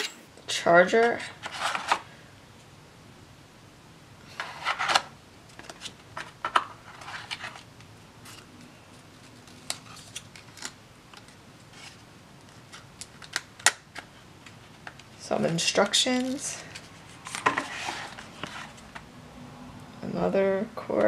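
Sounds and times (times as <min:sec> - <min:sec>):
cardboard packaging rustling: 0:04.3 - 0:19.1.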